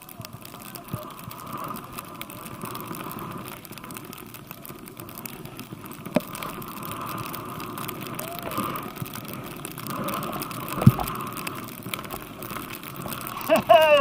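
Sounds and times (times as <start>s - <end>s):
skis hissing through powder snow: 0.0s - 14.0s.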